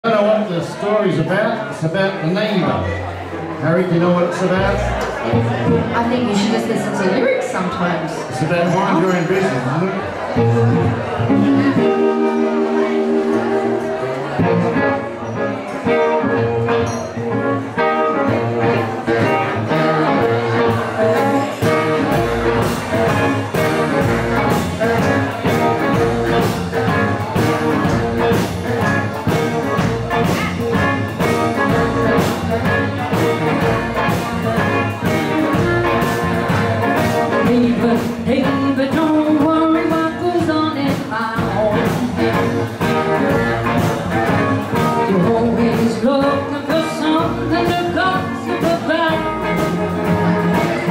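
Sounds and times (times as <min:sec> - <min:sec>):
live band playing: 0:00.0 - 0:50.9
singing: 0:18.2 - 0:26.0.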